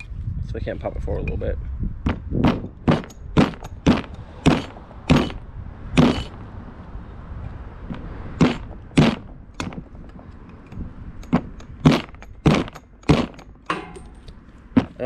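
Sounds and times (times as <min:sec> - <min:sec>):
mallet striking metal tool: 0:11.3 - 0:14.9.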